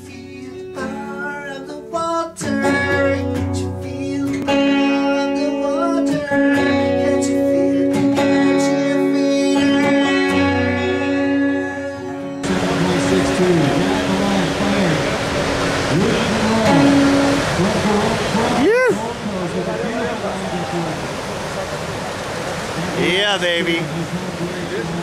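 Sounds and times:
guitar-led intro music: 0.0s - 18.3s.

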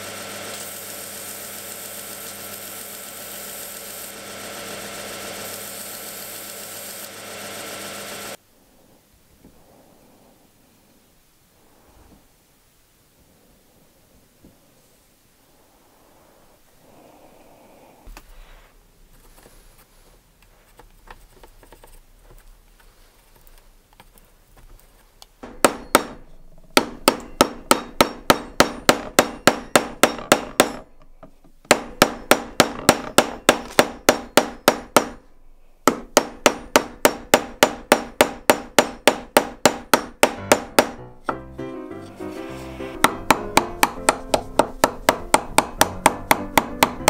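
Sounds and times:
hammer blows on wooden wedge: 35.9s - 47.0s.

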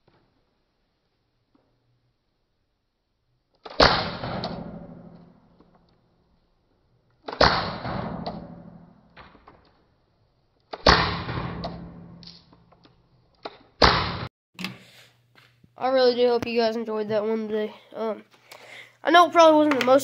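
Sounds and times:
airsoft gun shots: 3.6s - 5.2s, 7.3s - 8.9s, 10.7s - 12.3s, 13.8s - 14.3s.

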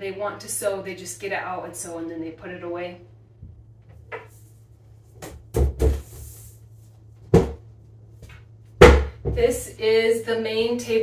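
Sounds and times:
cabinet doors knocking shut: 7.3s - 7.6s, 8.8s - 9.5s.

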